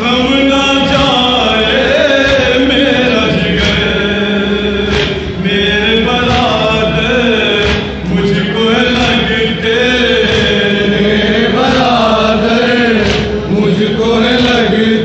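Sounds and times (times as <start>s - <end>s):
men chanting in unison: 0.0s - 15.0s
chest-beating slaps: 2.2s - 4.1s, 4.9s - 5.5s, 7.5s - 8.2s, 12.9s - 13.5s.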